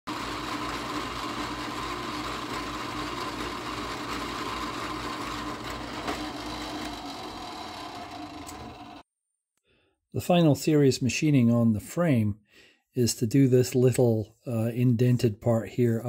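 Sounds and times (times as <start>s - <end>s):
milling spindle humming and whining: 0.1s - 9.0s
cutter boring into metal: 0.1s - 9.1s.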